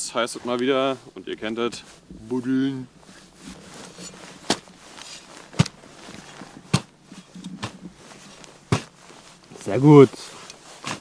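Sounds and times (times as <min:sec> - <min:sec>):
faint scraping of soil: 0:00.0 - 0:11.0
spade chopping into ground: 0:04.4 - 0:05.8, 0:06.6 - 0:06.9, 0:08.7 - 0:09.0.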